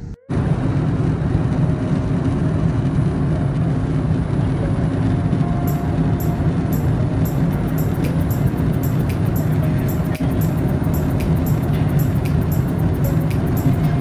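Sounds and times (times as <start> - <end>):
airliner cabin engine rush: 0.3 - 14.0
faint steady hum: 4.7 - 14.0.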